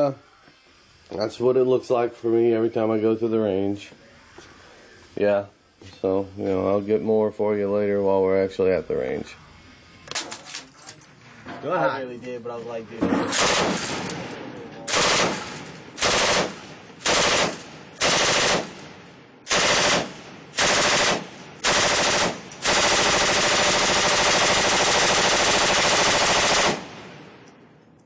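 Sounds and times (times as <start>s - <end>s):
machine gun firing bursts: 13.3s - 14.3s, 14.9s - 27.4s.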